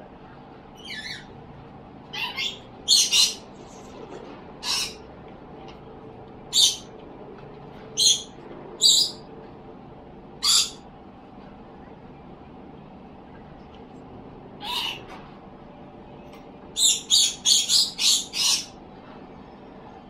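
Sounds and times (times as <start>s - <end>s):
bird harsh calls: 0.8s - 1.3s, 2.1s - 3.5s, 4.6s - 5.0s, 6.5s - 6.9s, 8.0s - 9.2s, 10.4s - 10.8s, 14.6s - 15.1s, 16.8s - 18.8s.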